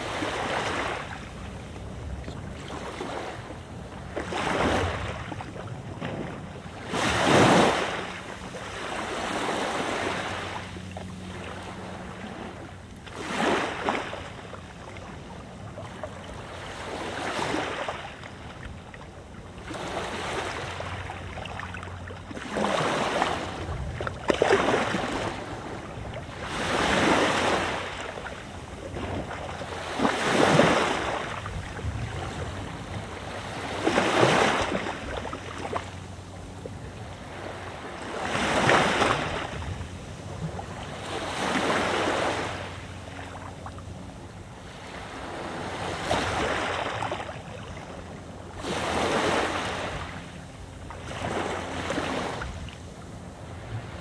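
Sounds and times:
waves breaking on beach: 0.0s - 54.0s.

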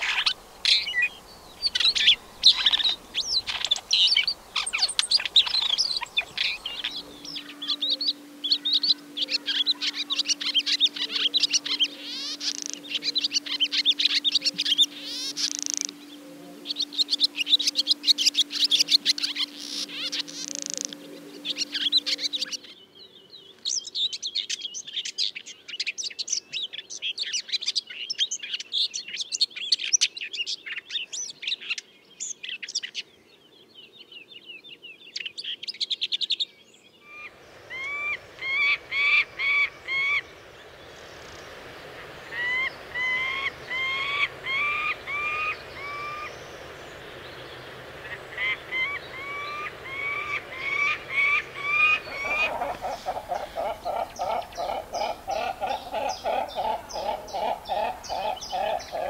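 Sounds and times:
bird of prey ringing calls: 0.0s - 22.7s, 41.2s - 46.6s, 48.0s - 59.0s
outdoor hiss: 0.0s - 22.8s, 37.0s - 59.0s
songbird twittering: 0.0s - 33.1s, 34.3s - 59.0s.

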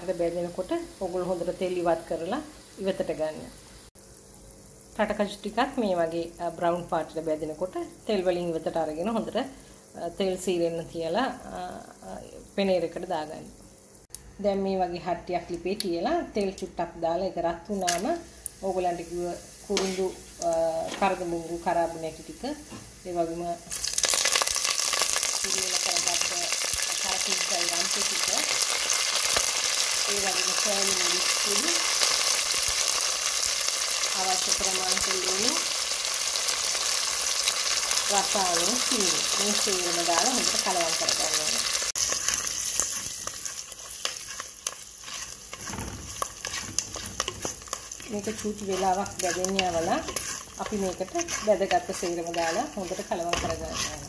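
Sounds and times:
leaves sizzling in hot oil: 0.0s - 54.0s
spatula clicks and scrapes: 42.0s - 54.0s.

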